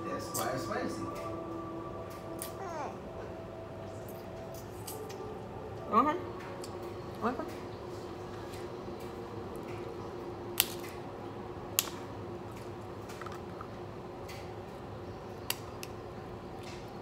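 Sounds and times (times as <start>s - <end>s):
steady low hum: 0.0s - 17.0s
crab shells cracking: 10.6s - 10.9s.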